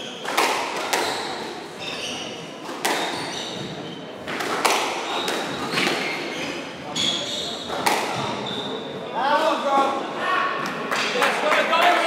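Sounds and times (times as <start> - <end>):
shoes squeaking on wooden floor: 0.0 - 9.0
squash ball hits echoing: 0.1 - 1.6, 2.6 - 6.3, 7.4 - 8.6.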